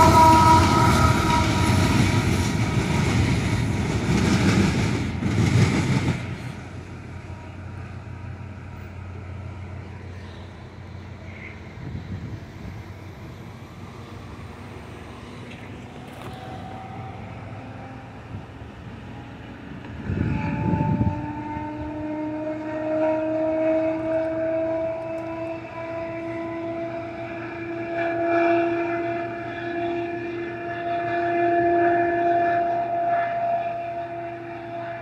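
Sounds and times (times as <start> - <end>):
locomotive air horn chord: 0.0 - 3.4, 15.2 - 35.0.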